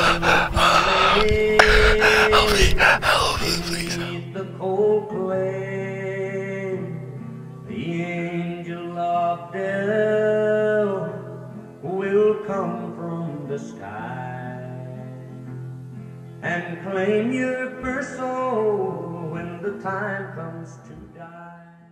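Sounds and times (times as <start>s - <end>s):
man singing long notes: 0.0s - 6.7s.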